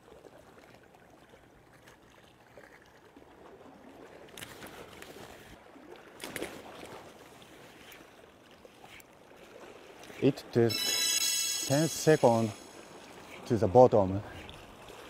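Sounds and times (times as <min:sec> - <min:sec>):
water rushing: 0:09.5 - 0:15.0.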